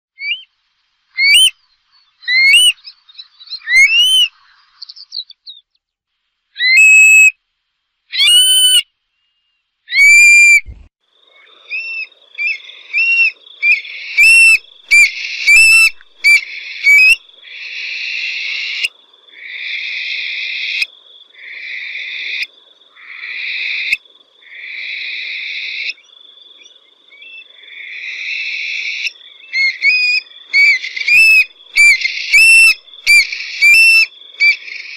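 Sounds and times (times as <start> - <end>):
bird calling with whistled notes: 0.2 - 0.5, 1.2 - 5.8, 6.6 - 7.4, 8.1 - 10.8, 11.7 - 18.9, 25.6 - 34.9.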